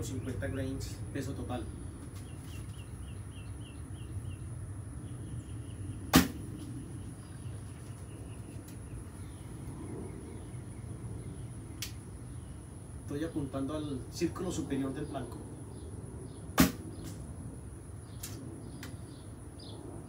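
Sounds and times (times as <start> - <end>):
bow string slap: 6.1 - 6.4, 16.6 - 16.8.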